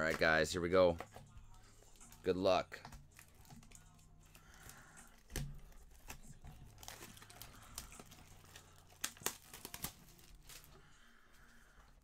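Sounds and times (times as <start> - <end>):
shrink wrap tearing and crinkling: 3.2 - 11.0.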